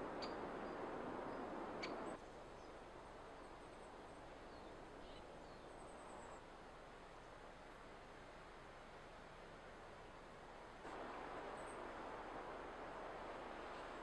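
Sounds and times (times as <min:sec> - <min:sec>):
steady rushing hiss: 0:06.5 - 0:14.0.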